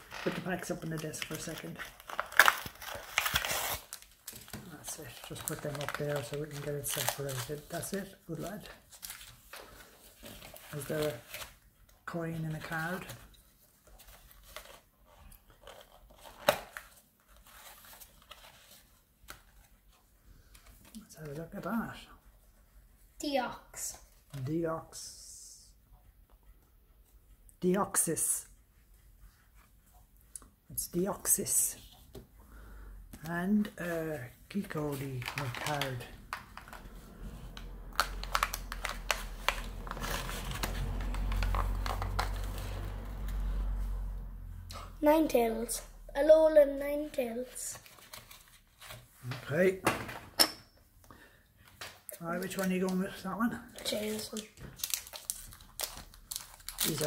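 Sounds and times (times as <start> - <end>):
cardboard rustling and tearing: 0.0 - 11.7, 14.0 - 19.7, 34.6 - 43.8, 53.8 - 57.0.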